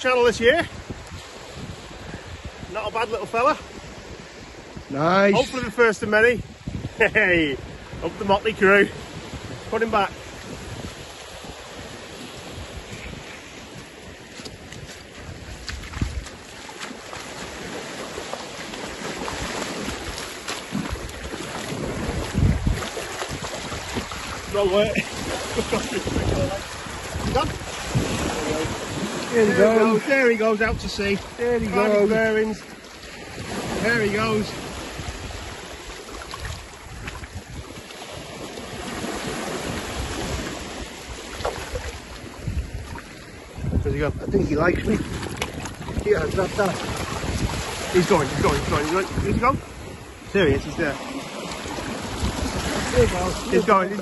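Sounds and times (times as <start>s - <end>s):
small waves breaking: 0.0s - 54.0s
wind buffeting microphone: 0.0s - 54.0s
seawater sloshing and splashing: 10.2s - 43.8s, 44.7s - 54.0s.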